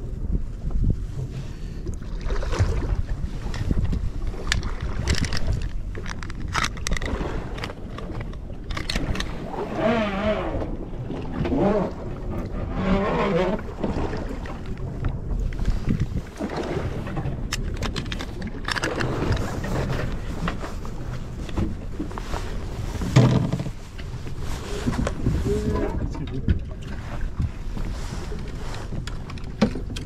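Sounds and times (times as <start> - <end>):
boat low rumble: 0.0 - 30.0
wind buffeting microphone: 0.0 - 30.0
clicks of fishing tackle: 3.5 - 9.4, 17.5 - 20.6.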